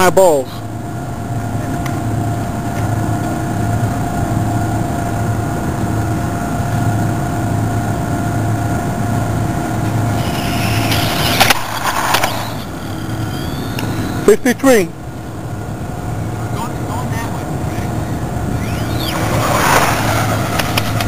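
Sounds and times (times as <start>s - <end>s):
background hum: 0.0s - 21.0s
rc car motor and tyre rush: 9.8s - 14.9s, 17.7s - 21.0s.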